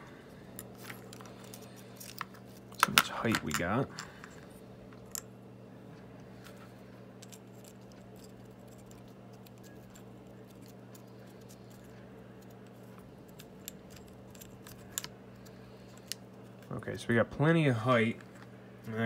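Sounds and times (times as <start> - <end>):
steady low hum: 0.0 - 19.0
small parts clicking and tapping: 0.5 - 5.3, 7.2 - 16.7.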